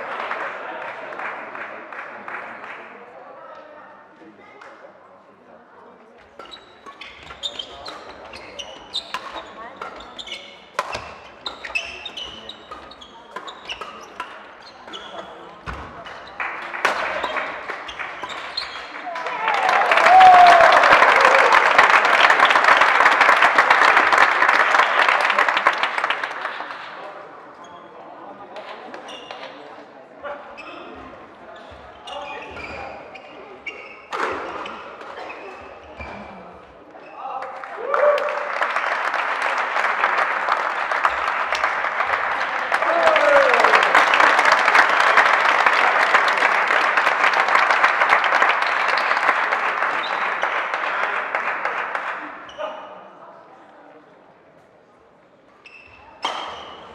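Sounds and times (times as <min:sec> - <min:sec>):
spectators applauding: 0:00.0 - 0:03.1, 0:16.3 - 0:27.0, 0:37.5 - 0:52.4
crowd clapping: 0:00.0 - 0:03.2, 0:15.1 - 0:27.1, 0:37.4 - 0:52.5.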